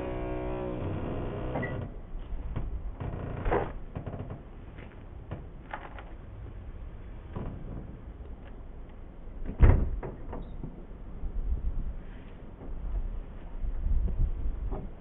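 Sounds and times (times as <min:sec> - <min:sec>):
heavy door thump: 0:09.5 - 0:10.2.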